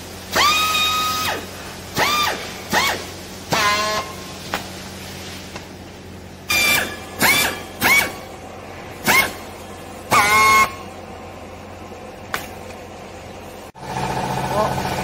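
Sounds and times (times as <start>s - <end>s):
strapping tool motor whirring: 6.5s - 8.2s.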